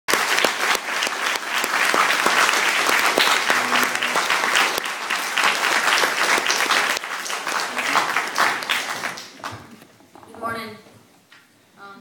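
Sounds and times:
audience applauding: 0.1s - 9.8s.

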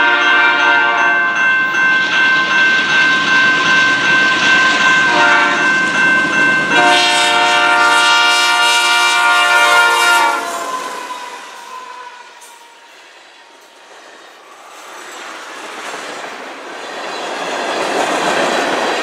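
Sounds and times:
locomotive air horn chord: 0.0s - 1.3s, 4.6s - 5.7s, 6.7s - 11.2s.

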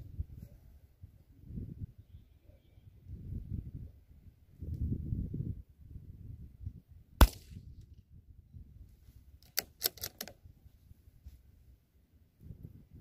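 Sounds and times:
wind rumbling on microphone: 0.0s - 2.2s, 2.8s - 9.3s, 10.3s - 13.0s
rifle shot: 7.2s - 7.7s
rifle bolt metallic clicks: 9.4s - 10.4s.

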